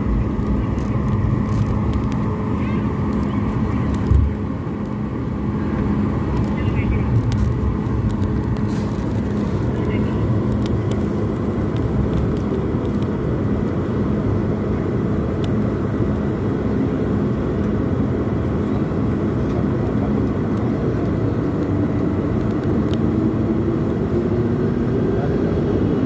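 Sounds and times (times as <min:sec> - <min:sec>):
jet engine drone in cabin: 0:00.0 - 0:26.0.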